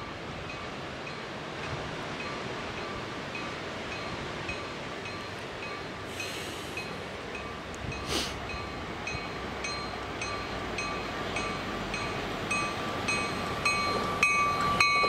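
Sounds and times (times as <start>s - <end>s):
distant passenger train rumble: 0.0s - 15.0s
high ringing chime: 4.0s - 15.0s.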